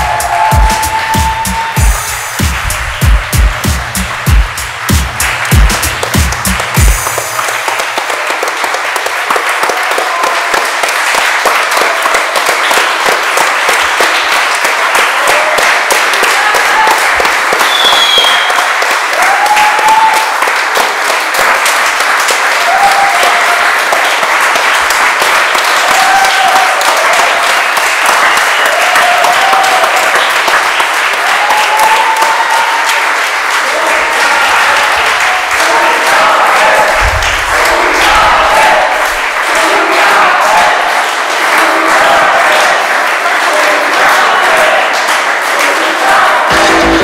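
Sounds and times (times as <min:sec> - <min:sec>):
audience applause: 0:00.0 - 0:47.0
high whistle-like call: 0:17.6 - 0:18.6.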